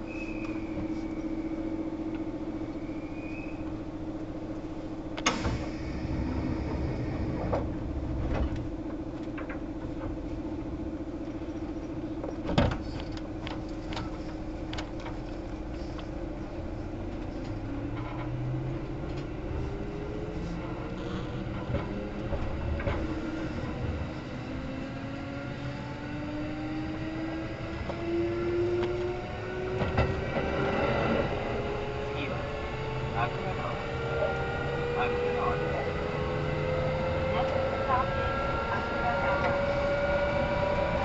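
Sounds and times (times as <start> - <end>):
train interior hum: 0.0 - 41.0
sharp train clunks: 5.2 - 10.2, 29.7 - 31.4
traction motor whine rising: 15.8 - 41.0.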